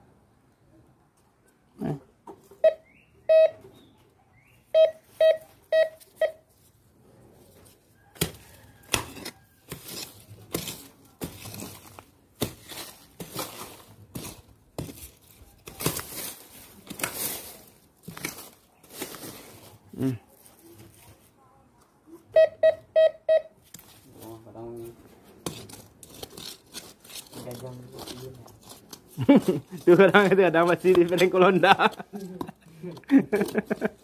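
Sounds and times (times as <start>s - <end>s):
metal detector beeps: 2.6s - 3.7s, 4.7s - 6.4s, 22.3s - 23.6s
digging scraping in soil: 6.0s - 21.3s, 23.6s - 34.0s.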